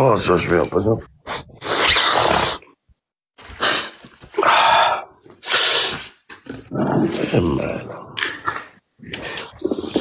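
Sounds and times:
person gasping heavily: 4.4s - 5.2s.

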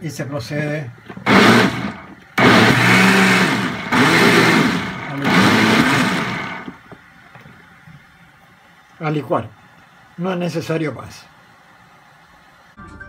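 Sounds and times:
blender motor pureeing: 1.2s - 6.8s.

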